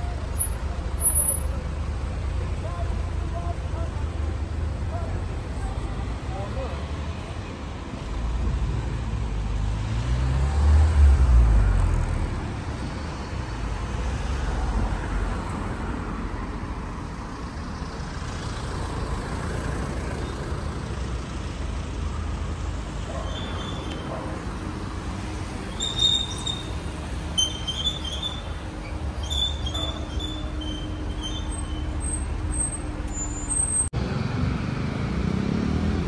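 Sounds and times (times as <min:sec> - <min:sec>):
traffic hum: 0:00.0 - 0:36.0
vehicle engine passing: 0:08.2 - 0:12.6, 0:29.8 - 0:36.0.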